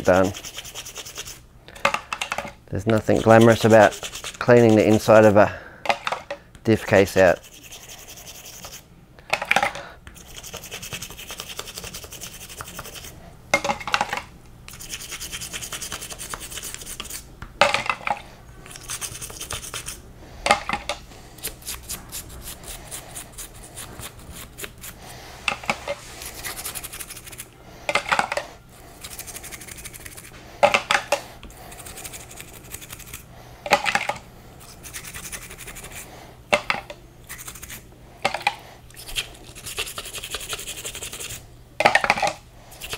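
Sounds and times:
toothbrush scrubbing plastic case: 0.0 - 1.4, 2.9 - 5.4, 10.1 - 13.1, 14.7 - 17.2, 18.6 - 20.0, 20.6 - 28.4, 29.0 - 31.0, 31.7 - 36.7, 37.3 - 41.4.

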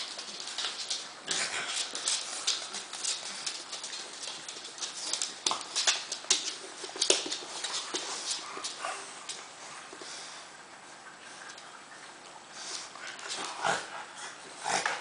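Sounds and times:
claws clicking on wooden floor: 0.0 - 9.4.

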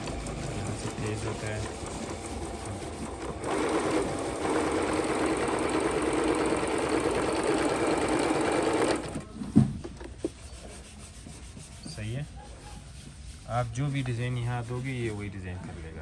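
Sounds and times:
sewing machine stitching: 0.0 - 9.3.

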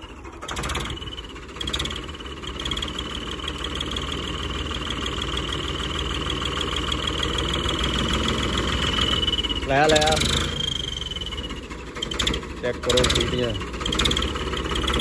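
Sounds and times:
tractor diesel engine running: 0.0 - 15.0
steady high whistle: 8.9 - 11.6.

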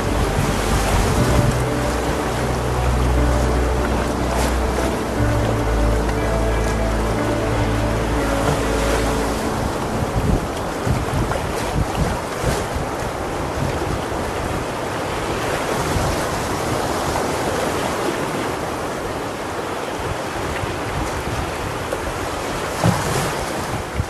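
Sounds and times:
wind buffeting microphone: 0.0 - 17.9
whitewater rushing: 0.0 - 24.0.

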